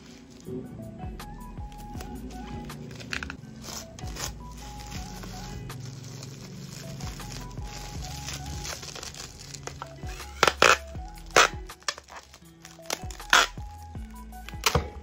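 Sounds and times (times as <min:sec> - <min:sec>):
bubble wrap crinkling: 0:00.0 - 0:00.6, 0:01.6 - 0:15.0
background music: 0:00.0 - 0:15.0
packing tape rasping off dispenser: 0:02.9 - 0:15.0.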